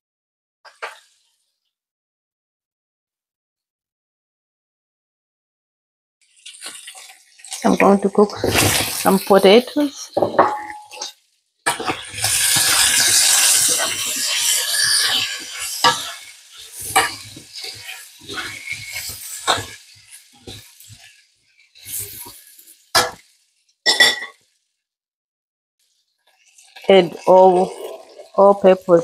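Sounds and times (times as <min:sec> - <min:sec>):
potatoes sizzling in butter: 0:06.2 - 0:24.6, 0:25.8 - 0:29.0
metal tongs clacking on pan: 0:16.9 - 0:17.9.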